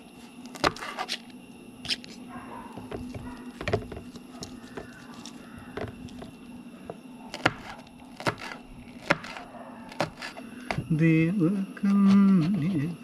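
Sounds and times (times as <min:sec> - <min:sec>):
knife chopping on plastic board: 0:00.5 - 0:01.2, 0:02.8 - 0:10.9.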